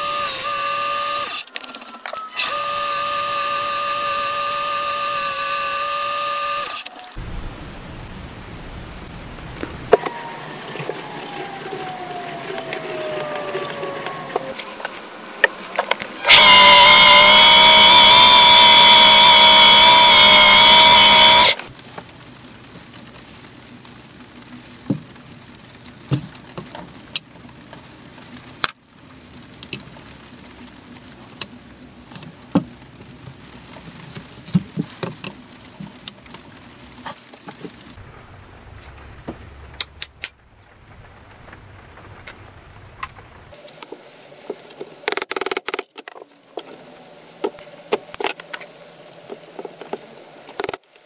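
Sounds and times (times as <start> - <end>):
loud layered steady tone: 7.2 - 15.5
wood lathe spinning down: 16.2 - 21.6.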